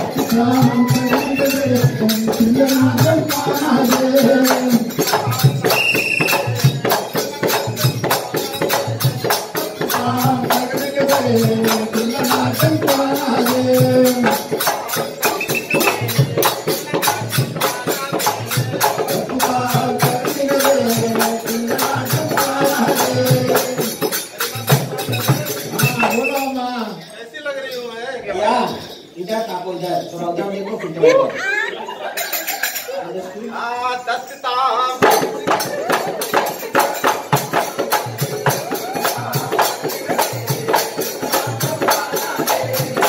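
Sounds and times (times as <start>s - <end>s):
hand drum beat: 0.0s - 26.4s, 35.0s - 43.0s
jingling percussion: 0.0s - 43.0s.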